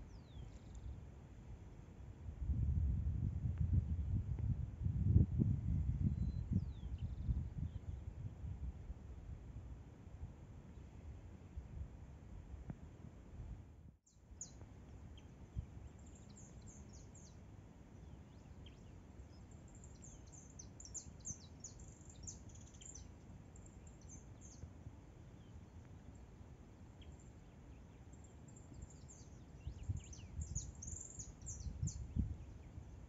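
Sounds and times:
small birds chirping: 0.0s - 1.0s, 6.0s - 8.0s, 14.1s - 17.4s, 18.0s - 26.3s, 26.9s - 33.0s.

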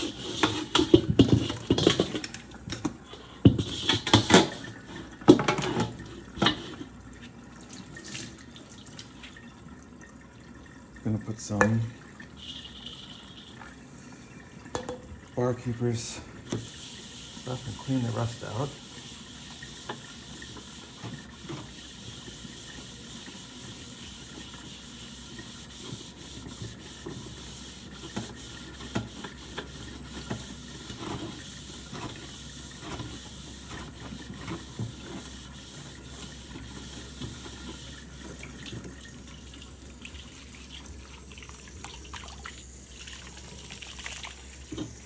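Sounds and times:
sponge scrubbing wok: 0.0s - 2.1s, 16.6s - 38.3s.

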